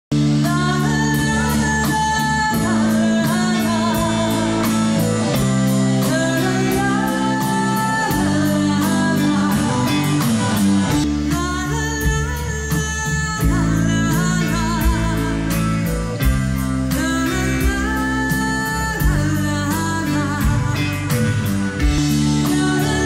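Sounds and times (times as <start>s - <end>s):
live rock band: 0.1s - 23.0s
woman singing lead vocal: 0.2s - 23.0s
audience noise: 1.2s - 11.4s.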